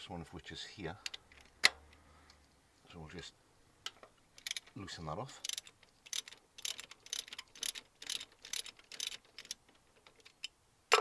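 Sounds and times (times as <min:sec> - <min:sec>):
socket ratchet clicking: 0:04.4 - 0:04.8, 0:05.4 - 0:10.5.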